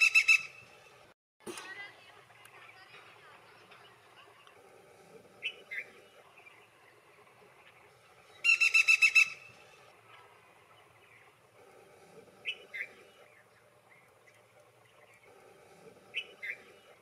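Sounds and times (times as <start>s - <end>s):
short faint bird calls: 5.4s - 17.0s
woodpecker rattling call: 8.4s - 9.5s.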